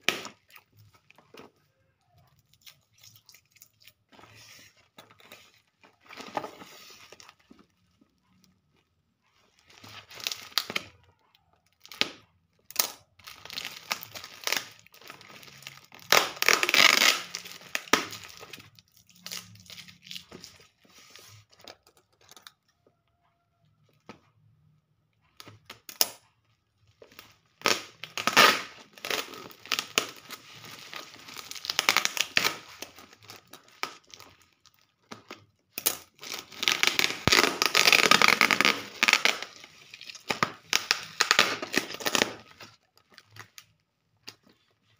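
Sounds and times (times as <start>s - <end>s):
plastic wrapping ripping and rustling: 12.8s - 22.3s, 26.9s - 44.9s.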